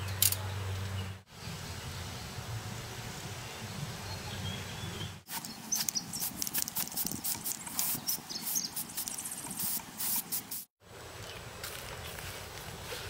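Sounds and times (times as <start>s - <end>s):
spray can hissing: 5.3s - 10.7s.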